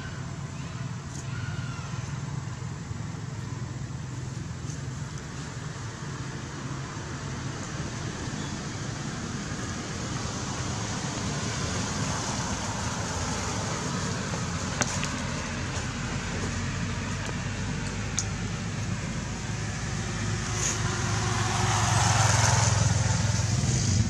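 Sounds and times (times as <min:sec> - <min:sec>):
hiss: 0:20.4 - 0:21.0.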